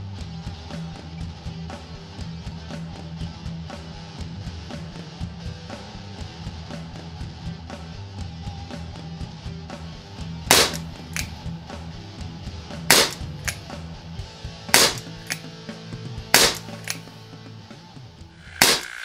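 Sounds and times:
background music: 0:00.0 - 0:19.0
pellet revolver shots: 0:10.5 - 0:11.4, 0:12.9 - 0:13.7, 0:14.7 - 0:15.5, 0:16.4 - 0:17.1, 0:18.5 - 0:19.0.

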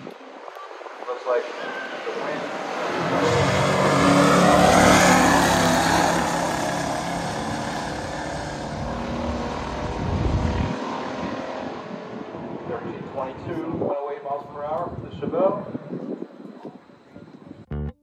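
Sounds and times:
muscle car engines revving: 0:02.0 - 0:12.6.

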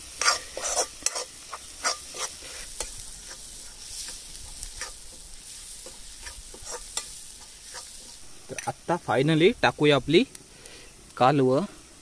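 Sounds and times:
utensil scraping pan: 0:00.0 - 0:08.7
masala sizzling in oil: 0:00.0 - 0:12.0.

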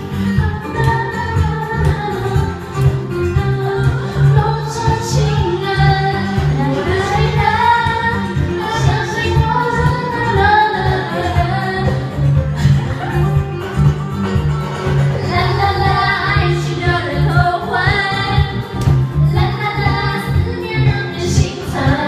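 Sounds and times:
backing track with beat and bass: 0:00.0 - 0:22.0
women singing karaoke: 0:00.0 - 0:22.0.

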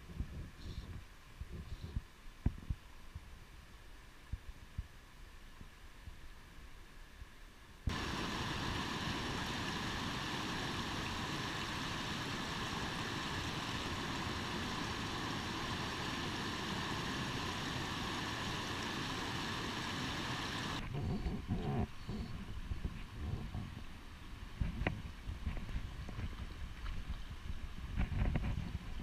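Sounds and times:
water rushing over rocks: 0:07.9 - 0:20.8.

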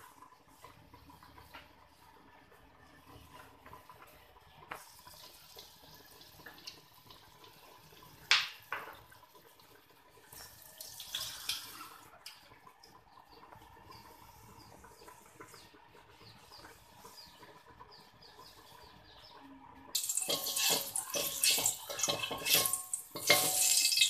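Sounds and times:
kitchenware clinks: 0:20.0 - 0:24.0.

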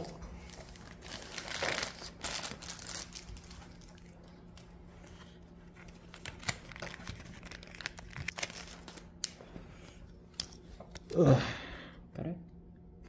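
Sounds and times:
foil wrapper crinkling and tearing: 0:00.4 - 0:04.6, 0:05.8 - 0:09.2.

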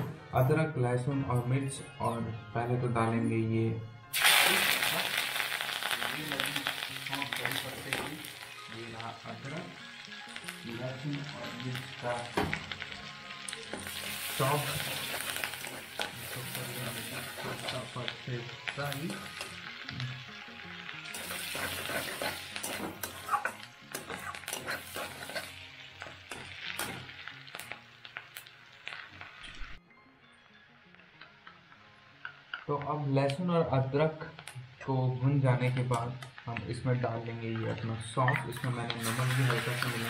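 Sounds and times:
food sizzling in hot oil: 0:04.1 - 0:29.8, 0:31.4 - 0:40.0
metal spatula scraping pan: 0:21.1 - 0:27.3.

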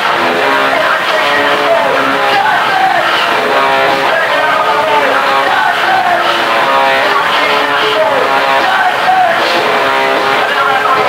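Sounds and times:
punk rock with electric guitar: 0:00.0 - 0:11.0.

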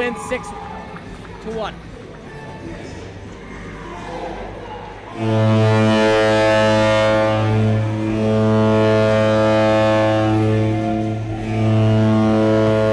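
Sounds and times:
arena horn long low blast: 0:05.1 - 0:12.9.

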